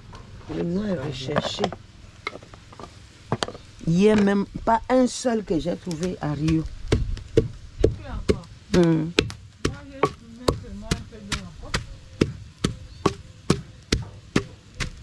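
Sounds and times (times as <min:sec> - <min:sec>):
pestle pounding in wooden mortar: 0:06.4 - 0:15.0.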